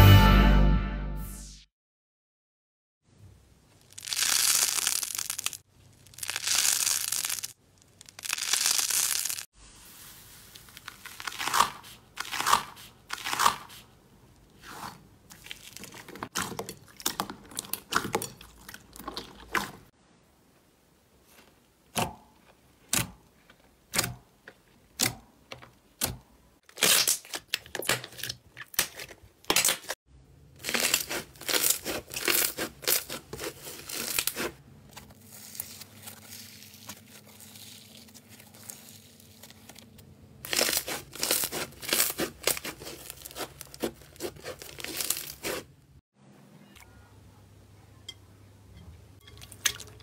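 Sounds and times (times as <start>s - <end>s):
foam-bead slime crunching: 3.8s - 13.8s, 14.6s - 19.7s, 30.6s - 45.7s.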